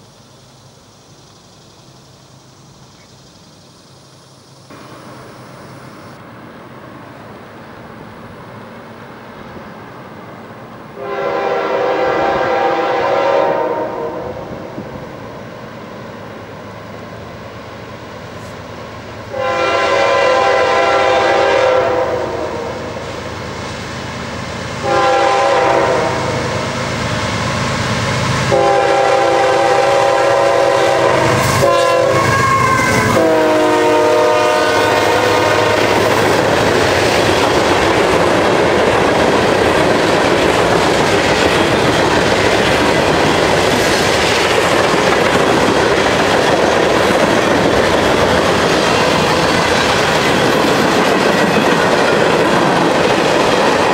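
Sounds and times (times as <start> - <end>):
locomotive air horn blasts: 11.0 - 14.4, 19.3 - 22.9, 24.8 - 26.7, 28.5 - 36.0.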